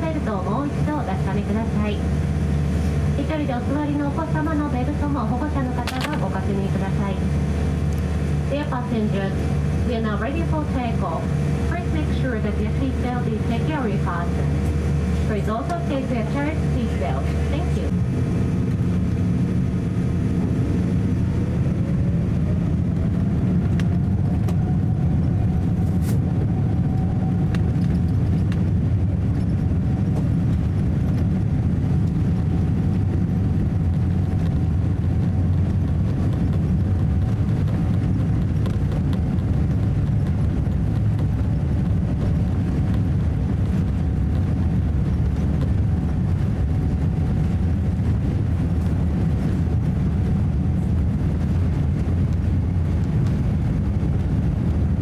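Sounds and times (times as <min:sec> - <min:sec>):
loud even engine rumble: 0:00.0 - 0:55.0
jet engine whine rising: 0:13.3 - 0:55.0.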